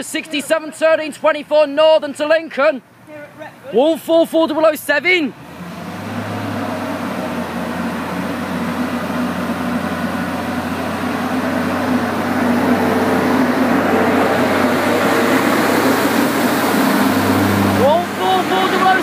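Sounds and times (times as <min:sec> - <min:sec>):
diesel railcar hum: 0:05.3 - 0:19.0
wheel and rail noise: 0:05.5 - 0:19.0.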